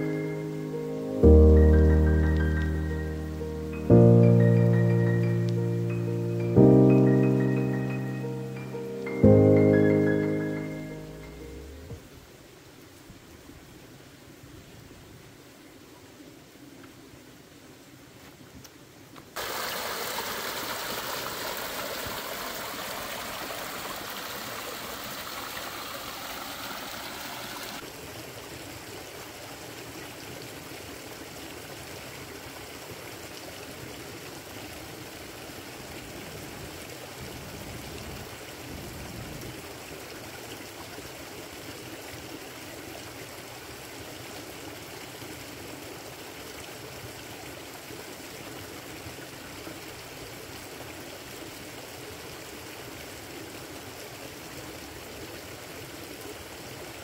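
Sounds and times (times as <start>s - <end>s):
stream rushing over rocks: 19.1s - 57.0s.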